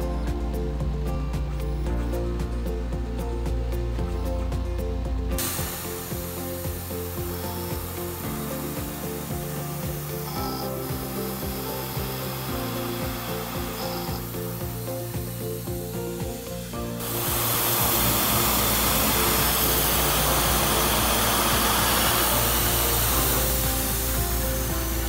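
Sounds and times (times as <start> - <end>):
spot drill hiss and hum: 0.0 - 25.0
milling machine cutting metal: 5.4 - 25.0.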